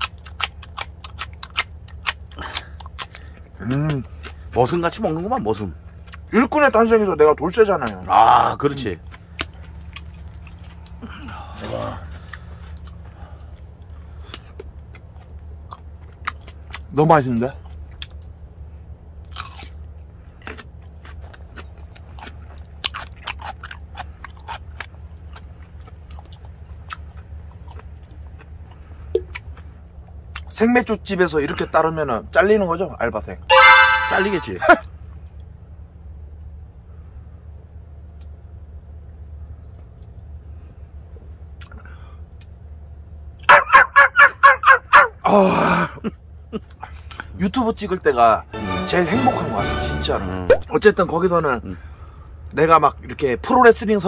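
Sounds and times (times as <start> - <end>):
wet mouth clicks and smacks: 0.0 - 4.4, 20.5 - 29.6, 41.6 - 42.6
man chewing food: 0.0 - 6.3, 9.0 - 16.9, 17.6 - 30.5, 37.4 - 43.5
steady low hum: 0.0 - 33.5, 50.1 - 54.0
small dog yelping: 43.4 - 45.2.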